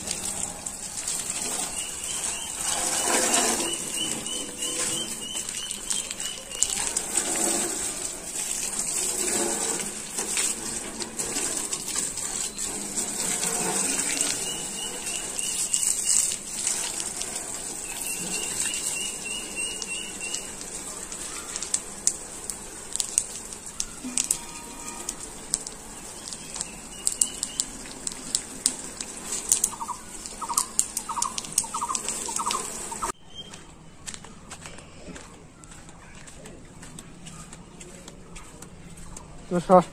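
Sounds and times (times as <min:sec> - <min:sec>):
hose water spraying and splashing: 0:00.0 - 0:33.2
small bird chirps: 0:01.3 - 0:06.9, 0:13.8 - 0:16.4, 0:17.8 - 0:20.6, 0:26.0 - 0:27.9, 0:29.5 - 0:33.8.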